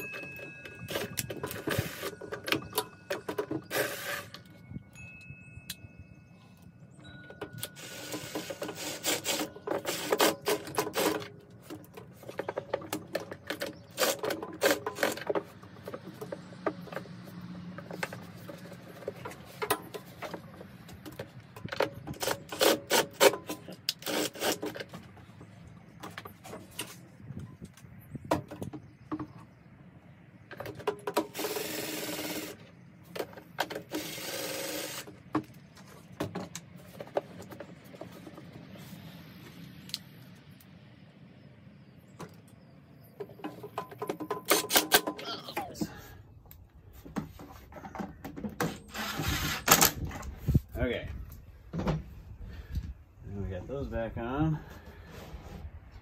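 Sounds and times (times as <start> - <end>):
drill motor running: 31.3 - 32.6, 33.9 - 35.1.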